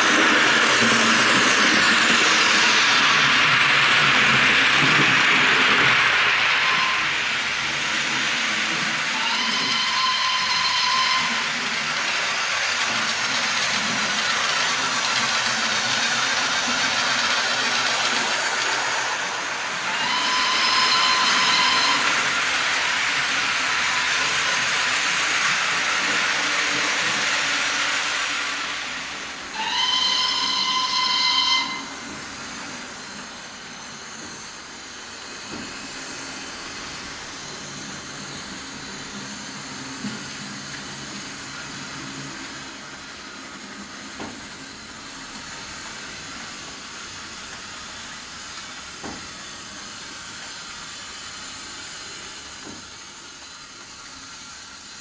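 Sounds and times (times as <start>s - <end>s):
steady locomotive running sounds: 0.0s - 55.0s
steam hiss: 0.0s - 55.0s
steam whistle blast: 5.7s - 7.6s, 9.1s - 11.7s, 19.8s - 22.5s, 29.5s - 32.2s.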